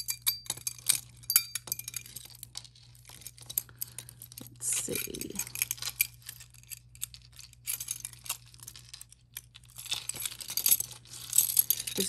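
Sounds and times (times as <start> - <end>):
metal chain clinking: 0.0 - 12.0
crinkly rustling: 2.0 - 4.5, 5.1 - 12.0.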